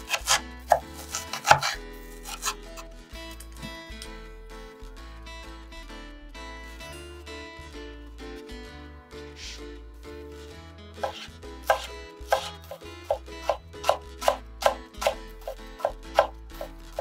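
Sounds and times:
knife chopping on wooden board: 0.0s - 2.6s, 11.0s - 16.7s.

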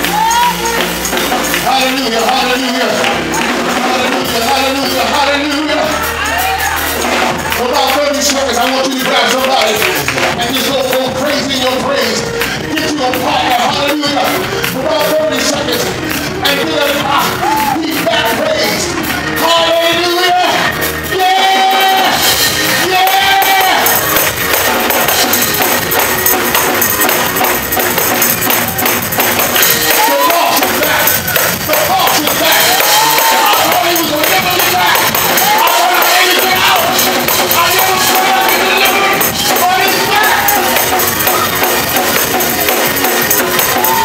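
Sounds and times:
lively church music: 0.0s - 44.0s
voices singing and calling out: 29.9s - 44.0s.

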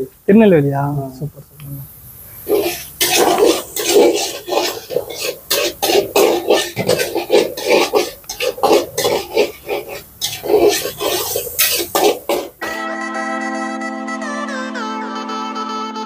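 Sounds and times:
metal spatula scraping a pan: 2.4s - 12.6s.

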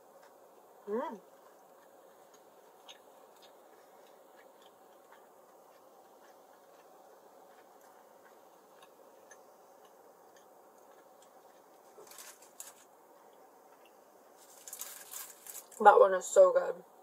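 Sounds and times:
crackly rustles: 10.8s - 15.9s.

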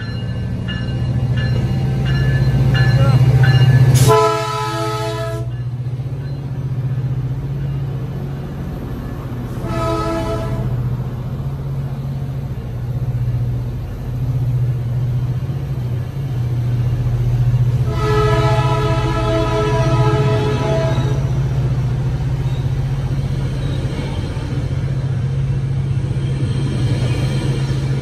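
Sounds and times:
diesel locomotive engine throbbing: 0.0s - 28.0s
train air horn blast: 4.0s - 5.5s, 9.6s - 10.8s, 17.8s - 21.3s.

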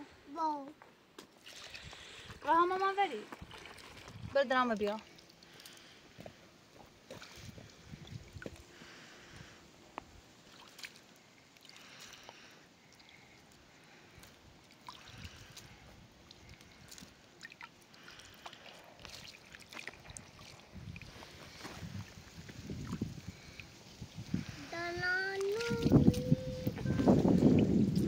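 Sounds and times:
water sloshing in a plastic basin: 1.2s - 5.9s, 10.4s - 23.7s, 25.4s - 26.8s.

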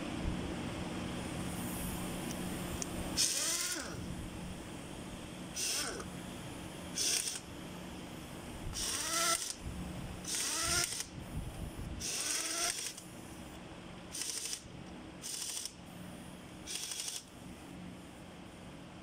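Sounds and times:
pneumatic ratchet whining: 3.2s - 4.0s, 5.5s - 6.1s, 6.9s - 7.5s, 8.7s - 9.6s, 10.2s - 11.1s, 12.0s - 13.0s, 14.1s - 14.6s, 15.2s - 15.8s, 16.7s - 17.3s.

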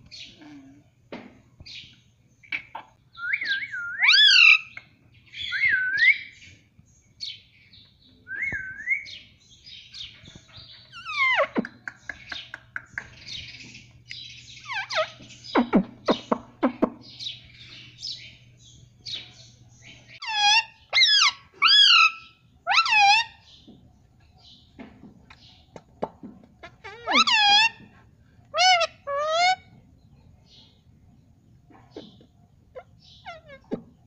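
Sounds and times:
parakeet chattering and whistling: 10.9s - 13.6s, 14.6s - 16.4s, 20.2s - 23.4s, 26.6s - 27.8s, 28.6s - 29.7s, 32.8s - 33.7s
parakeet squawks: 26.8s - 27.8s, 28.6s - 29.7s.

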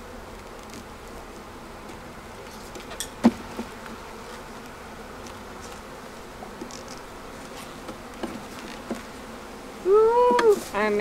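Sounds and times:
honeybees buzzing: 0.0s - 11.0s
hive tool knocking on wooden frames: 1.8s - 7.0s, 7.8s - 9.2s.

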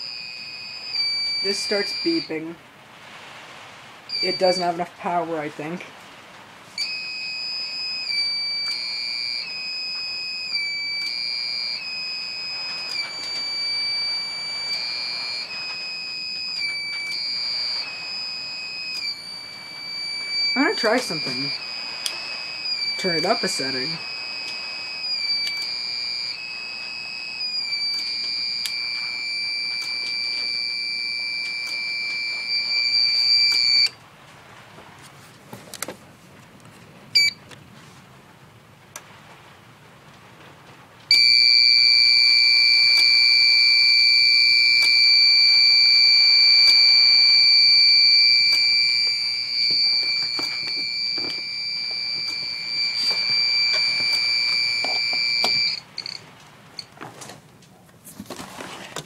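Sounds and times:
high-pitched alarm buzzer: 0.0s - 2.4s, 6.8s - 33.9s, 41.1s - 56.2s.

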